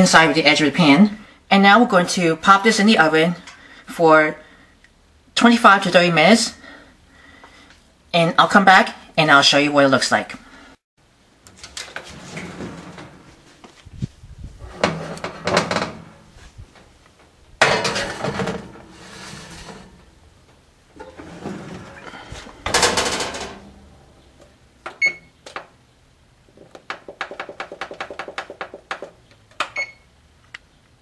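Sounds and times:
oven door shutting: 11.5 - 13.6, 14.6 - 16.3, 17.6 - 24.3
baking pan clattering on oven rack: 17.6 - 20.0
control panel beep: 25.0 - 25.3, 29.8 - 30.0
key beeps: 25.0 - 25.3, 29.8 - 30.0.

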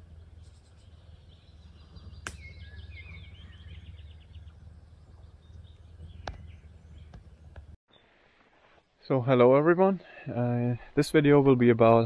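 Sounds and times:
low rumble: 0.0 - 7.8
songbird twittering and chirping: 0.0 - 8.1.

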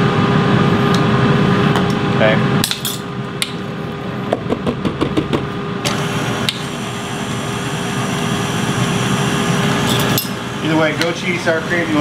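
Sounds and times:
stand mixer motor whirring: 5.8 - 12.0.

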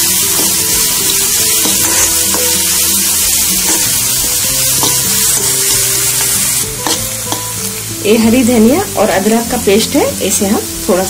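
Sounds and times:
onions sizzling in hot oil: 0.0 - 11.0
metal spoon scraping pan: 1.2 - 7.6.

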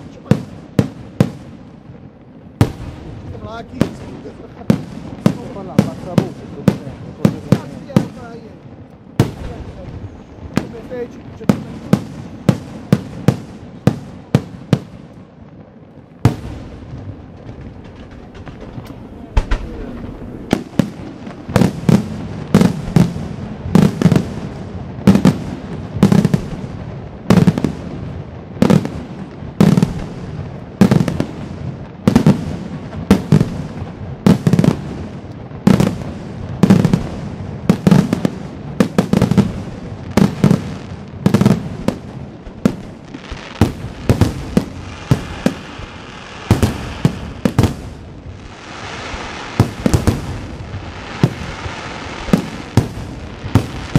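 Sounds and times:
fireworks hissing and crackling: 0.0 - 53.9
firework shells bursting: 16.2 - 24.3, 41.3 - 53.9.

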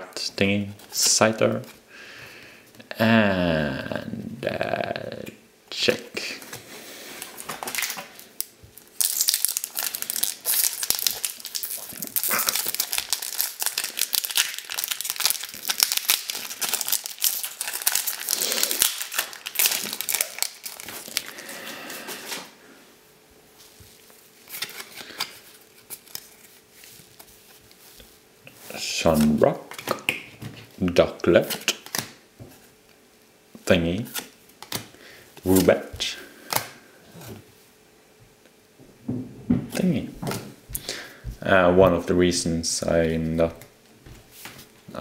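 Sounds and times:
foil wrapper crinkling and tearing: 7.3 - 21.6, 24.4 - 27.2
cards rustling softly: 23.6 - 30.7.

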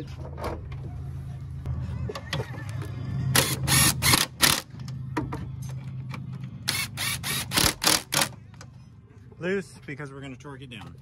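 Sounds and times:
impact wrench bursts: 3.4 - 4.7, 6.7 - 8.3.

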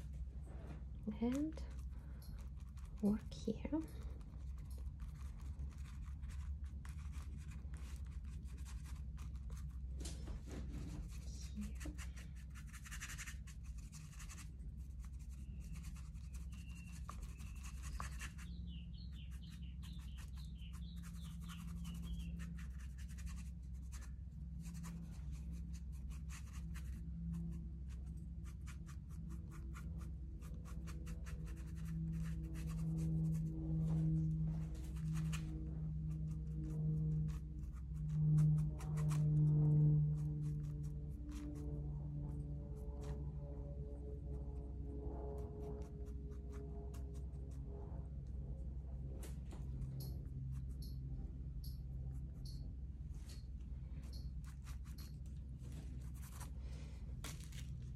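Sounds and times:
steady low hum: 0.0 - 57.9
tool scratching on painting: 1.1 - 10.0, 11.0 - 43.2, 53.4 - 56.6.

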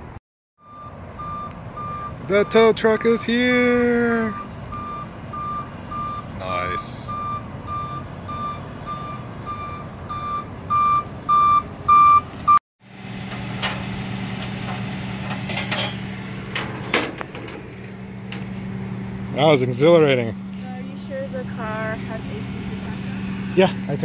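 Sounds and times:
truck reversing alarm beeps: 0.6 - 12.6
truck engine idling: 0.6 - 24.0
metallic clanks: 13.3 - 18.7.

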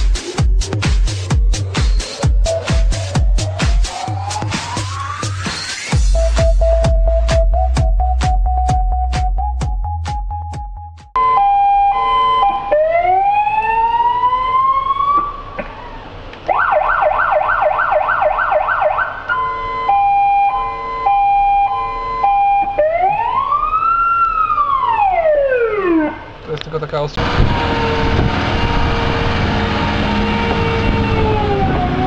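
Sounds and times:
electronic siren changing tones: 0.1 - 15.6, 16.5 - 26.4, 27.2 - 32.0.

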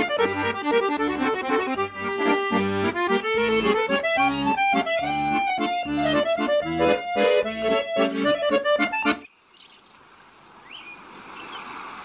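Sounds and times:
lively instrumental music: 0.0 - 9.2.

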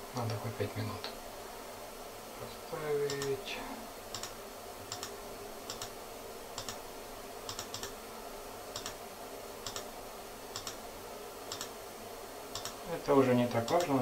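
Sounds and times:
mouse button clicks: 3.1 - 3.4.

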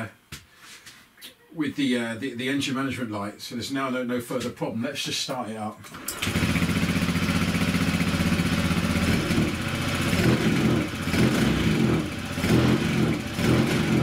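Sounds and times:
scooter engine idling and revving: 6.1 - 14.0.

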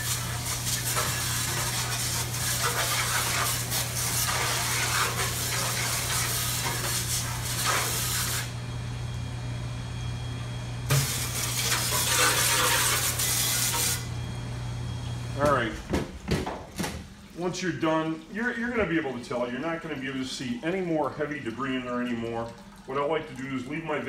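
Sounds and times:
hose spray hissing into metal vat: 0.0 - 8.5, 10.9 - 14.1.

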